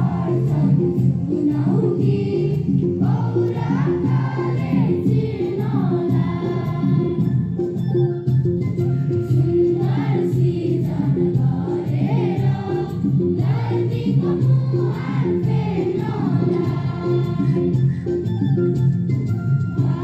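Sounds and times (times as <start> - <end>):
choir singing: 0.0 - 7.3, 9.4 - 17.8, 19.8 - 20.0
instrumental accompaniment: 0.0 - 20.0.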